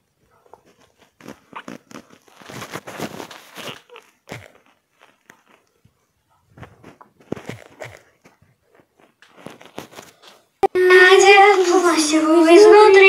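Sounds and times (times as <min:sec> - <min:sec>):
rustling and crinkling: 0:00.0 - 0:10.6
crackles: 0:00.0 - 0:10.8.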